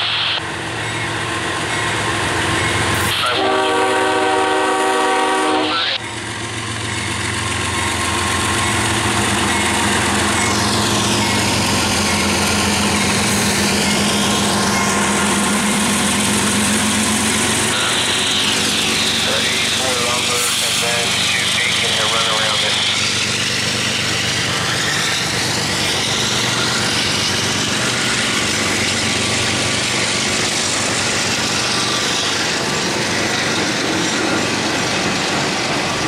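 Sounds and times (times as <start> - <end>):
locomotive air horn blast: 3.1 - 6.0
locomotive engine and wheels passing: 5.7 - 36.0.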